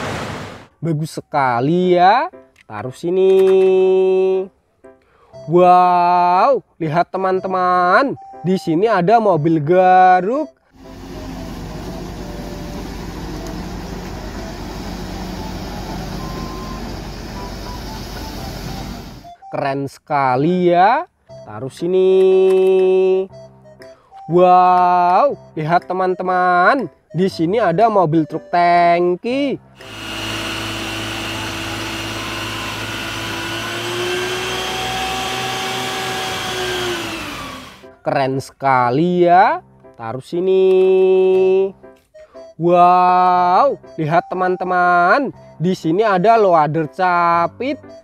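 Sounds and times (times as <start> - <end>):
truck water pump hissing and whining: 0.0 - 0.7, 10.8 - 19.3, 29.8 - 37.9
excavator diesel engine running: 10.8 - 19.4, 29.8 - 37.8.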